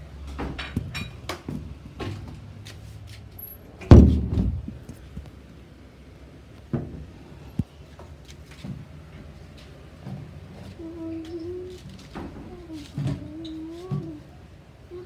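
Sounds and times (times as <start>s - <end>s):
heavy thump: 3.8s - 4.8s.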